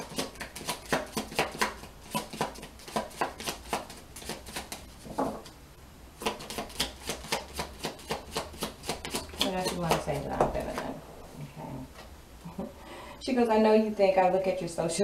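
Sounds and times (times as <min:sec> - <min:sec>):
cards being shuffled: 0:00.1 - 0:05.2.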